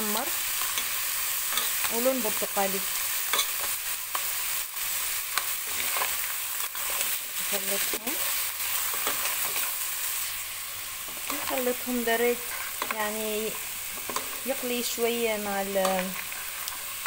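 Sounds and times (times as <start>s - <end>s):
shellfish sizzling in hot oil: 0.0s - 17.0s
shells scraping against pot: 0.5s - 2.1s, 3.1s - 4.3s.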